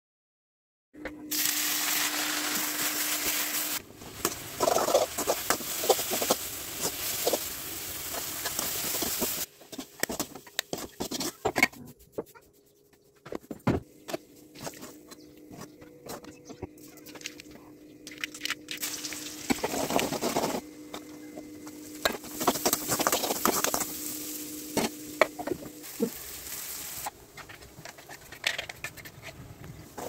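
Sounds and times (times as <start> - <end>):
spoon stirring and scraping a pot: 8.1 - 11.8, 27.3 - 29.4.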